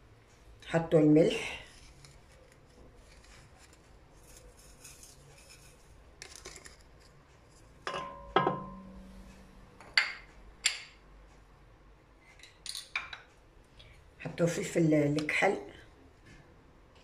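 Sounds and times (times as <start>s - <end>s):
sharp knocks on ringing pot: 7.9s - 9.0s.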